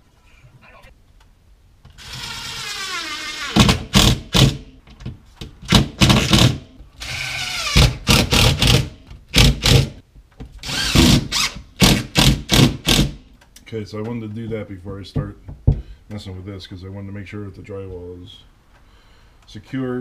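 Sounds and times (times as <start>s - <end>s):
screw driving strokes: 1.9s - 4.1s
cordless drill whining: 2.0s - 3.6s, 7.0s - 8.8s, 10.6s - 11.6s.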